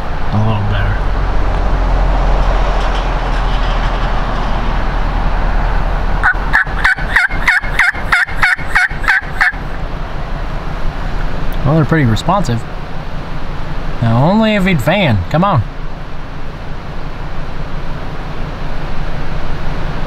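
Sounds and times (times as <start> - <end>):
steady low hum: 0.0 - 20.0
turkey calling: 6.2 - 9.8.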